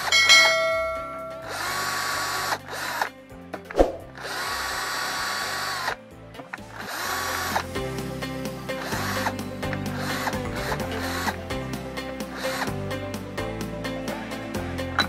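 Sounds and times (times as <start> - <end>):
electric drill running: 1.1 - 3.1, 4.0 - 6.0, 6.8 - 7.8, 8.8 - 11.4.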